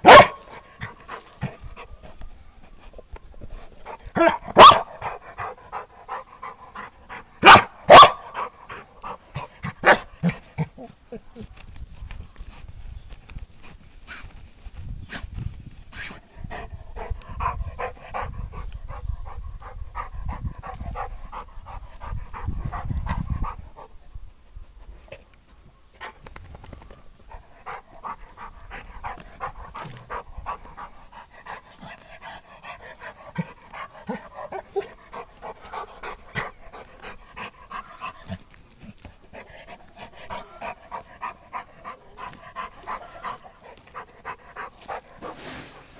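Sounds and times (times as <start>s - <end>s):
dog paws scratching dirt: 0.0s - 16.4s, 19.6s - 45.9s
dog panting: 5.0s - 7.4s, 16.2s - 25.2s, 27.2s - 45.4s.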